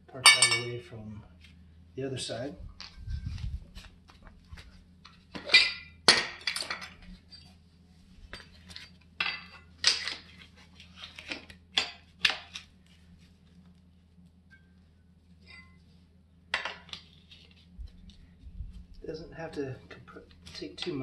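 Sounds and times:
metal tools clinking and clattering: 0.2 - 0.8, 5.4 - 7.5.

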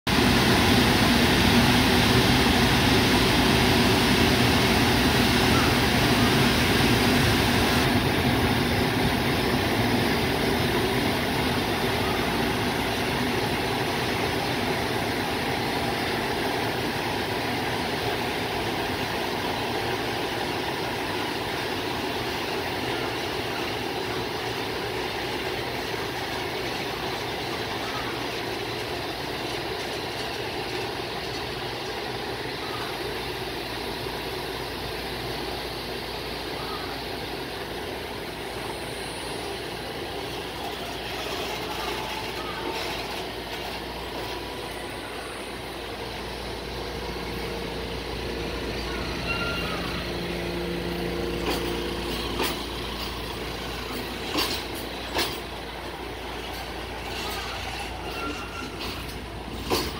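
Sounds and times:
electric locomotive humming: 0.1 - 59.9
freight wagons rolling by: 48.8 - 59.9.

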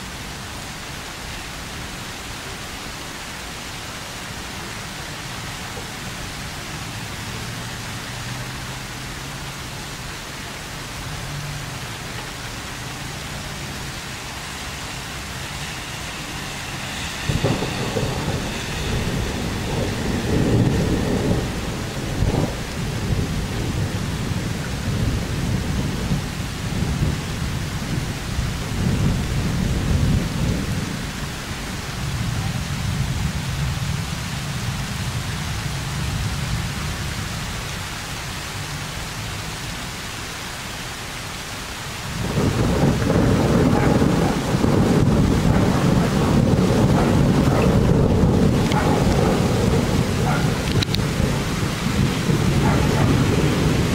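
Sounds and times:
rain hiss: 0.0 - 53.9
rolling thunder: 13.0 - 37.2, 42.0 - 53.9.

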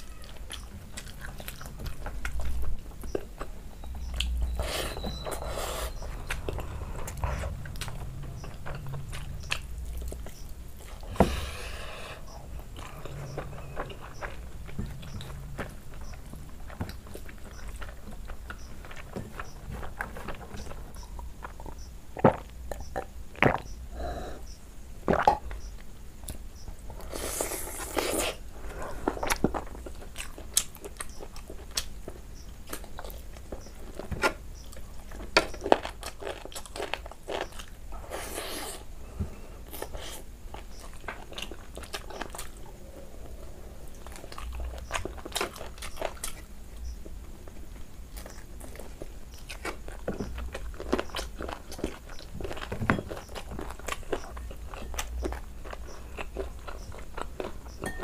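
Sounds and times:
person chewing food: 0.0 - 24.3, 25.0 - 58.0.

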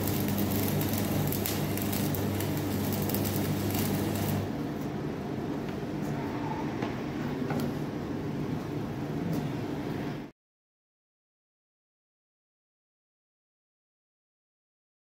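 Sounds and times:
welding arc crackle and sizzle: 0.0 - 4.9
steady low hum: 0.0 - 10.3.

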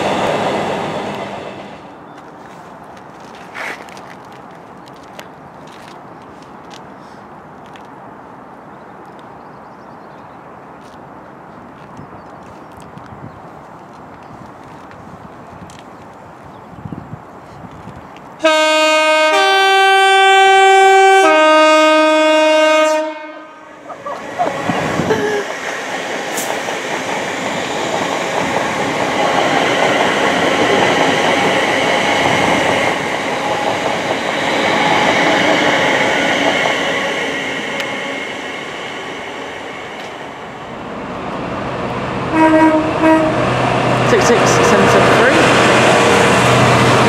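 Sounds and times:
train wheel and rail noise: 0.0 - 47.0
locomotive horn note: 18.4 - 23.8, 42.3 - 43.6
two-tone train horn: 18.4 - 23.8, 42.3 - 43.6.

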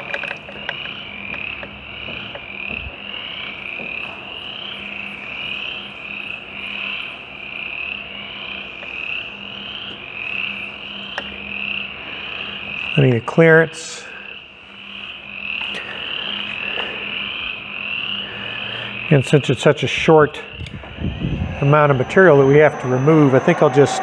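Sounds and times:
low machine hum: 19.7 - 24.0.

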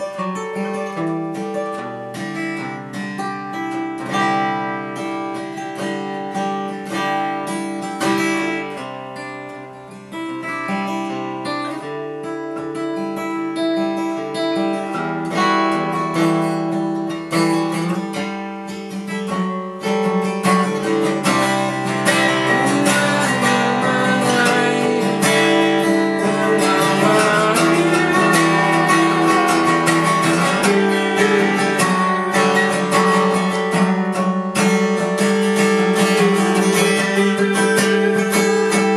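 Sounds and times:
acoustic guitar playing: 0.0 - 38.9.

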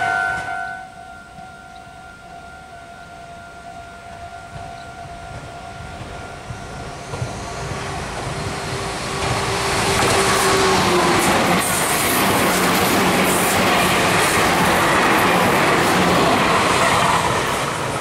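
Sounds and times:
sustained high tone: 0.0 - 8.1
train rail running noise: 0.0 - 18.0.

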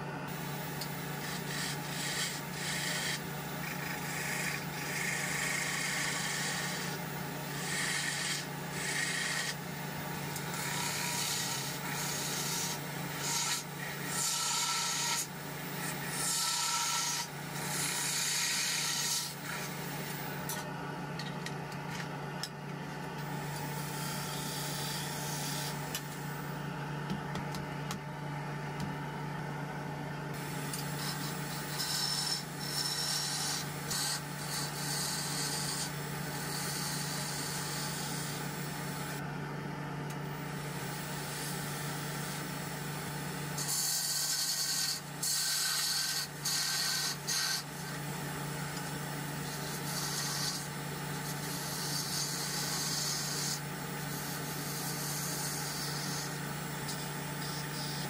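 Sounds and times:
wood lathe humming: 0.0 - 21.3, 21.9 - 26.7, 30.3 - 39.2, 40.1 - 58.0
gouge hissing and scraping wood: 0.4 - 7.0, 43.7 - 48.0.

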